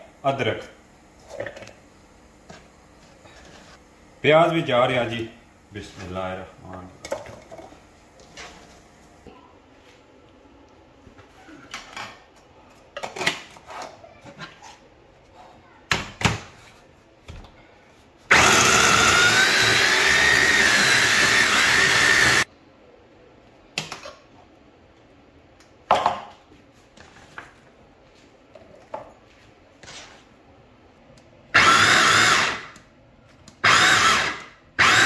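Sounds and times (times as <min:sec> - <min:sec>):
mini chopper motor whining: 0:18.3 - 0:22.5.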